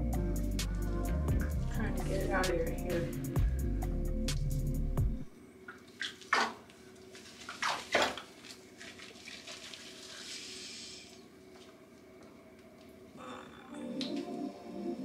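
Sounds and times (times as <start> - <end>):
background music: 0.0 - 5.3, 13.6 - 15.0
faint water hiss: 5.6 - 12.5
water splashing: 5.7 - 11.2
wet rubbing of dog fur: 7.1 - 11.1.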